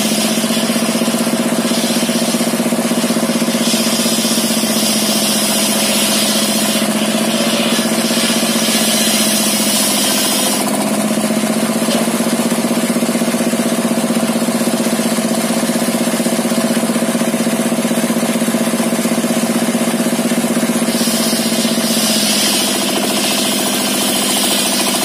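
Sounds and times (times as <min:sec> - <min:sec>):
saw blade cutting timber: 0:00.0 - 0:13.0, 0:20.6 - 0:25.0
diesel engine running: 0:00.0 - 0:25.0.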